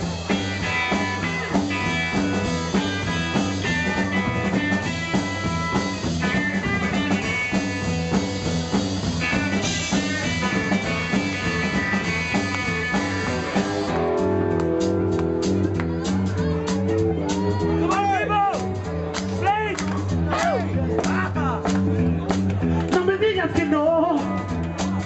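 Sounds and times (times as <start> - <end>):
electric guitar lead notes: 0.0 - 18.0
drum kit: 0.0 - 25.0
upright bass line: 0.0 - 25.0.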